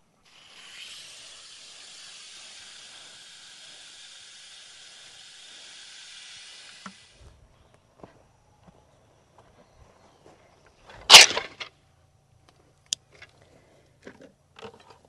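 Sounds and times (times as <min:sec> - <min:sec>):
hose spray hissing: 0:00.0 - 0:07.3.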